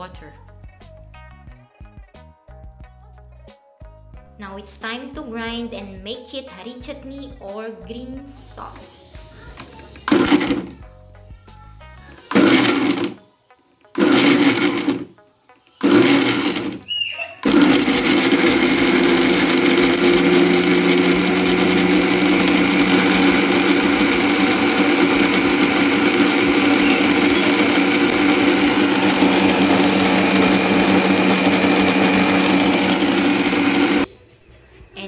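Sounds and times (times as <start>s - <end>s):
mixer grinder grinding: 9.9s - 10.8s, 12.2s - 13.2s, 14.0s - 15.1s, 15.8s - 34.1s.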